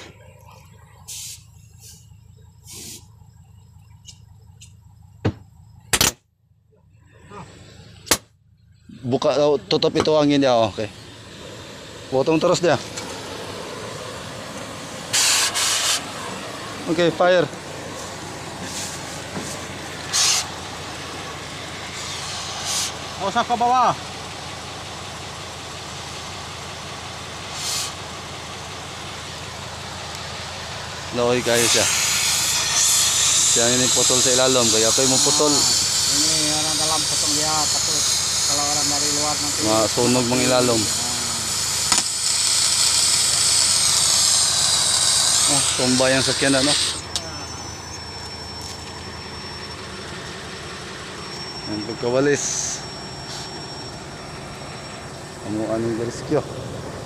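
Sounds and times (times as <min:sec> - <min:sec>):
cutting torch gas hissing: 0:01.1 - 0:02.0, 0:02.6 - 0:03.1, 0:10.8 - 0:23.6, 0:27.4 - 0:28.1, 0:30.8 - 0:47.2.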